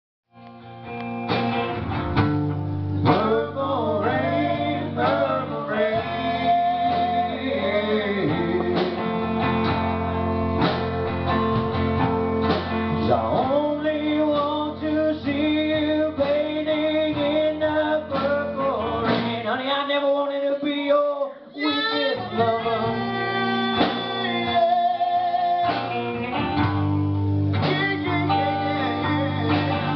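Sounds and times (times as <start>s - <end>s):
strummed acoustic guitar: 0.4s - 20.2s, 22.0s - 29.9s
man singing: 3.0s - 9.6s, 12.9s - 26.7s, 27.5s - 29.9s.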